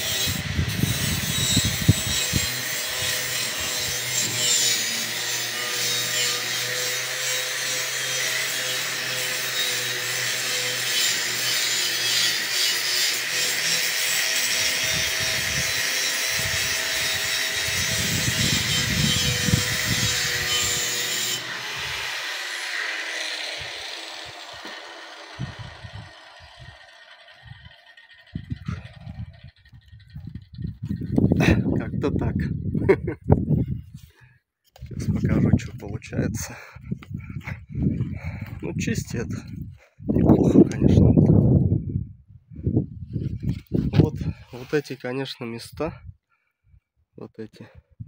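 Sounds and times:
grinder winding down: 0.0 - 31.5
angle grinder grinding metal: 0.0 - 31.8.

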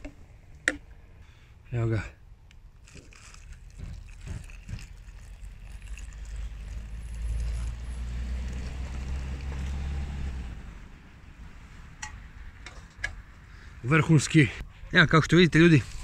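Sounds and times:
hot water pouring into a pouch: 2.8 - 9.8.

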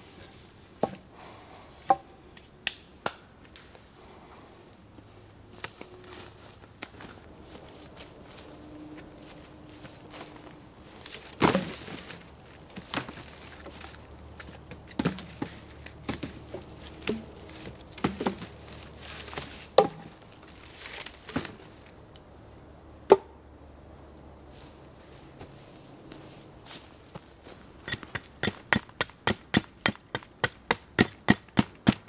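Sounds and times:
wood laid on pile: 9.8 - 21.9.

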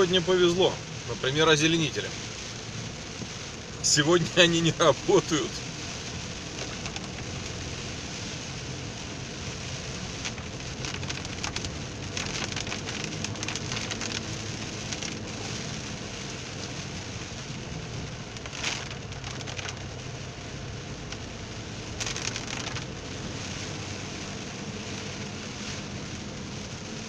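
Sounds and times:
engine and tyres humming: 0.0 - 27.0
heavy rain on car roof: 0.0 - 27.0.

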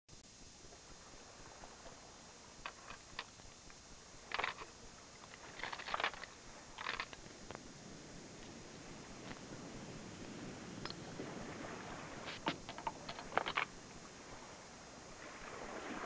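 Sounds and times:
lures rattling in plastic box: 4.3 - 4.7, 5.4 - 7.2, 12.4 - 13.7.

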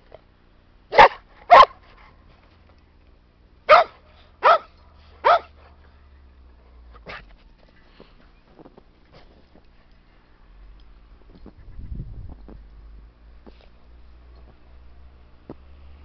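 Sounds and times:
dog barking: 0.9 - 1.8, 3.7 - 5.6.

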